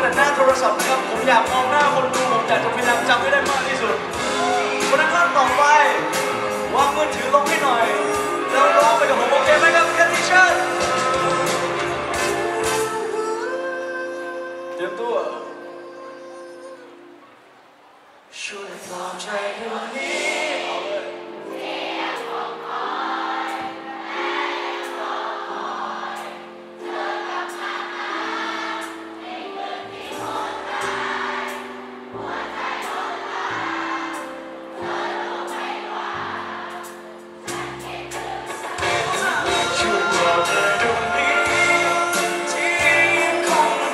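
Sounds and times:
live band guitar and bass: 0:00.0 - 0:13.1, 0:37.5 - 0:43.9
crowd singing along: 0:00.0 - 0:14.5, 0:18.4 - 0:43.9.

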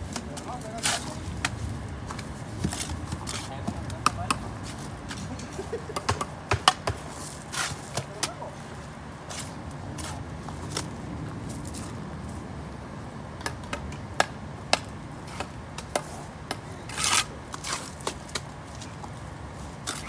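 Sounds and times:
trowel tapping and scraping: 0:00.1 - 0:07.0.

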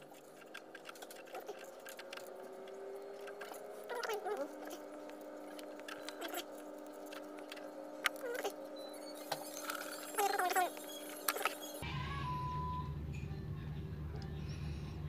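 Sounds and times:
fingers rubbing cord and stick: 0:00.0 - 0:11.8
faint steady tones: 0:00.0 - 0:15.0.

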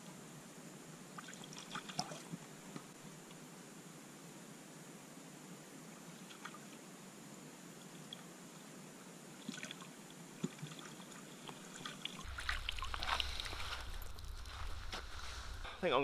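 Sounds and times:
small ticks and splashes: 0:01.2 - 0:02.9, 0:06.1 - 0:06.8, 0:07.8 - 0:08.3, 0:09.4 - 0:15.4
underwater water sounds: 0:11.4 - 0:15.8
landing net splashing and dripping: 0:11.7 - 0:15.5.

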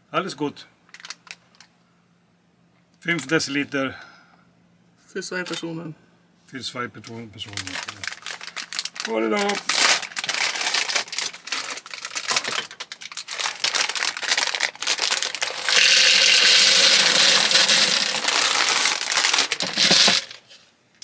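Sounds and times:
plastic bag crinkling: 0:00.9 - 0:01.7, 0:07.4 - 0:20.6
dry pasta pouring into jug: 0:13.0 - 0:20.4.

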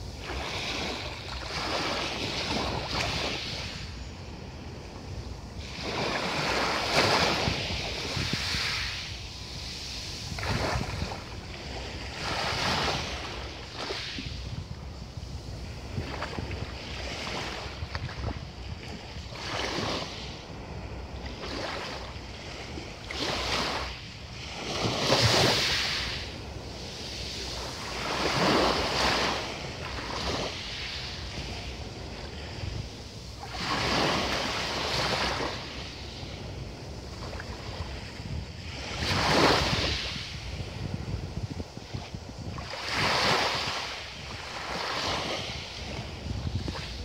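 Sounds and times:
waves washing up pebble shore: 0:00.1 - 0:03.9, 0:05.6 - 0:14.7, 0:23.0 - 0:36.3, 0:36.9 - 0:47.0.

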